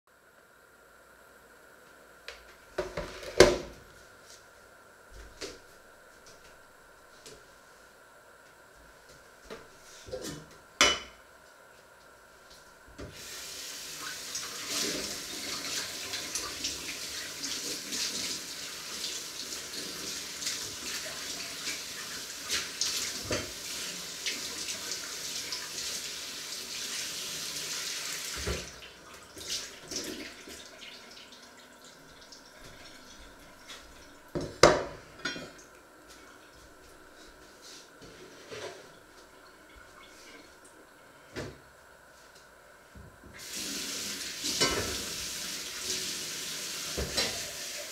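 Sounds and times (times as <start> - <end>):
tap running into sink: 46.9 - 47.6.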